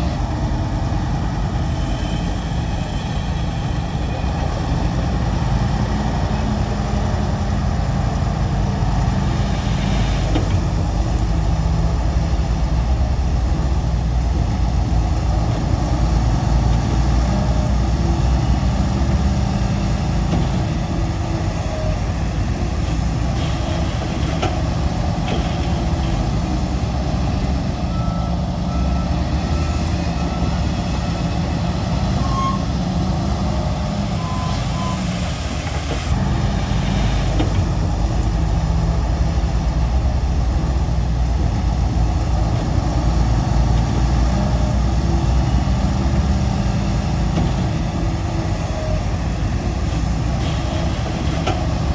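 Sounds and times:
heavy diesel machinery running: 0.0s - 51.9s
reversing alarm beeps: 32.2s - 32.6s, 34.2s - 35.1s.

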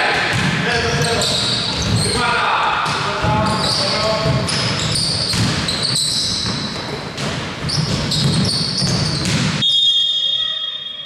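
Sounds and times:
basketball bouncing: 0.1s - 2.1s, 2.8s - 9.6s
sneakers squeaking on court: 0.3s - 2.2s, 2.8s - 9.7s
faint steady high tone: 9.7s - 11.0s.

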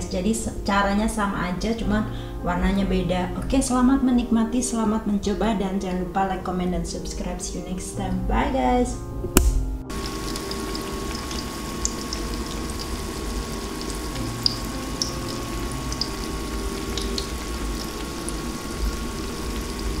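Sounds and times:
food frying in hot oil: 9.9s - 20.0s.

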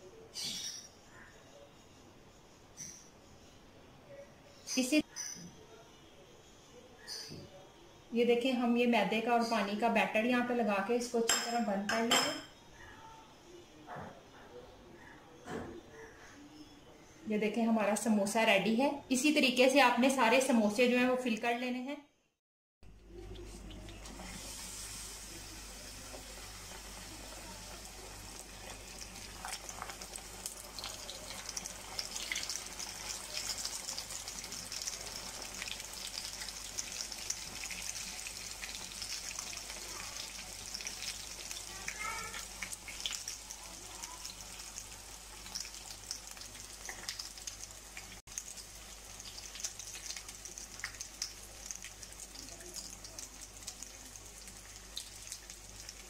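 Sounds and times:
deep-frying sizzle with pops: 22.9s - 56.0s.

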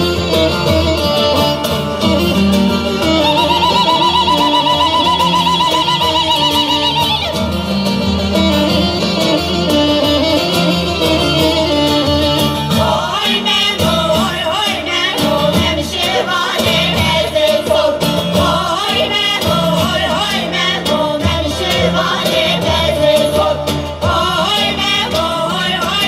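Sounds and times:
lute playing: 0.0s - 26.0s
women singing folk song: 12.5s - 26.0s.

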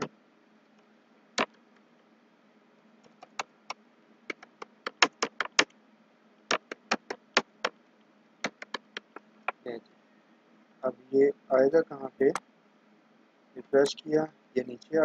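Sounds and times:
faint low hum: 0.0s - 15.0s
computer keyboard keys clicking: 3.1s - 3.5s, 4.3s - 5.7s.

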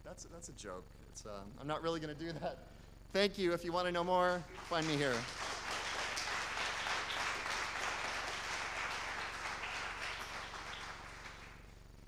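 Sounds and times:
audience applauding: 4.5s - 11.8s.

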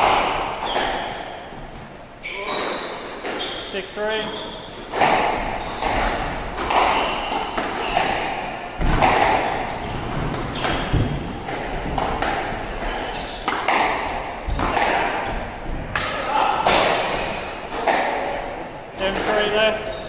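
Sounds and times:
squash ball hitting racket and walls: 0.0s - 20.0s
shoe squeak: 0.6s - 4.9s, 6.9s - 8.5s, 10.4s - 12.2s, 12.8s - 13.7s, 17.1s - 17.8s.

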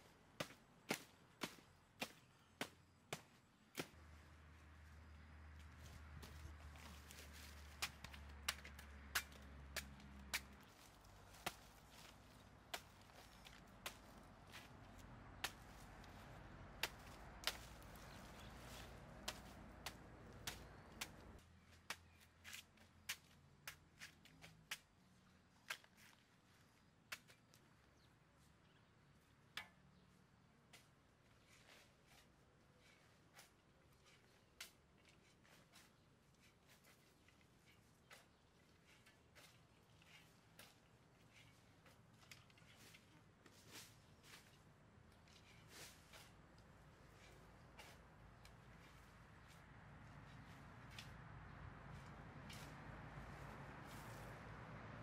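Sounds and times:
hoe striking soil: 6.2s - 23.8s, 30.7s - 49.6s, 51.9s - 52.8s.

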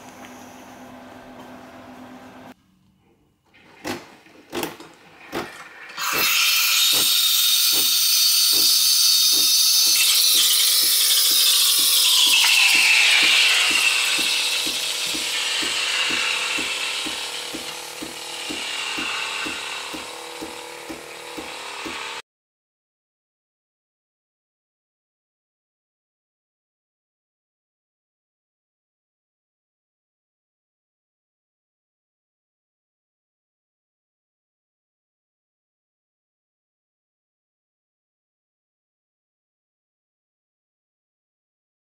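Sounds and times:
pump clicks: 3.8s - 22.0s
coffee machine hissing: 5.0s - 22.2s.

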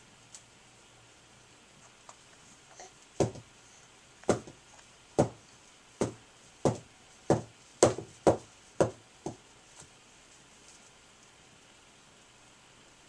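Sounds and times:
doll thumping on carpet: 3.2s - 3.5s, 4.3s - 4.6s, 5.2s - 5.4s, 6.0s - 9.4s.

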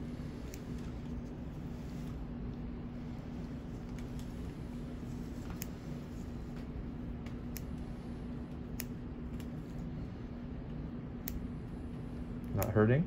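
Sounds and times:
steady low hum: 0.0s - 13.0s
surgical scissors clicking: 7.2s - 7.8s, 8.7s - 9.6s, 11.2s - 11.5s.

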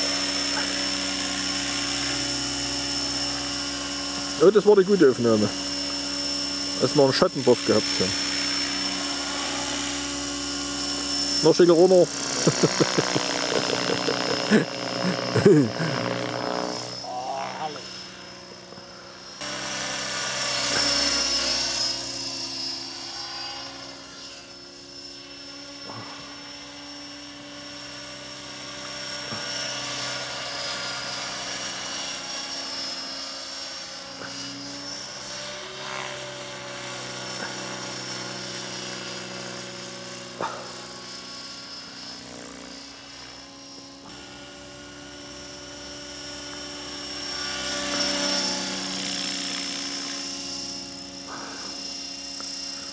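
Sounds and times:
model helicopter rotor whirring: 0.0s - 52.9s.

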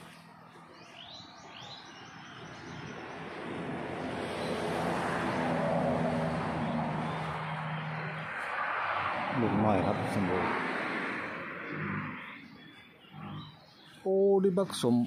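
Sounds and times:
bird chirps: 0.0s - 3.4s, 11.6s - 15.0s
vehicle engine approaching: 0.0s - 13.7s.

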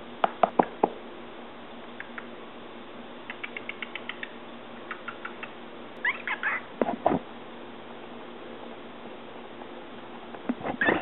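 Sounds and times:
cockatiel clicking: 2.0s - 2.3s, 3.2s - 5.6s.

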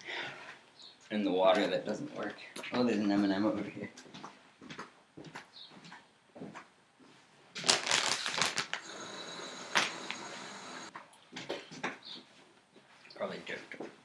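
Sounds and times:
plastic bag crinkling: 7.6s - 10.9s
steady hiss: 8.8s - 10.9s.

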